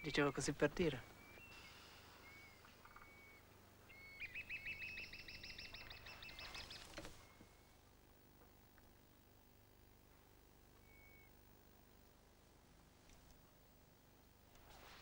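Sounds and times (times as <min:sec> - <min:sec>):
bird singing trills: 0:00.0 - 0:07.7, 0:10.8 - 0:11.4.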